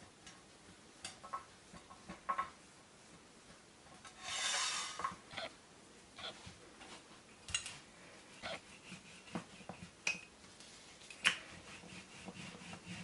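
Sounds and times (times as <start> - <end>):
dough rubbing in flour: 8.1 - 10.0, 10.6 - 13.0.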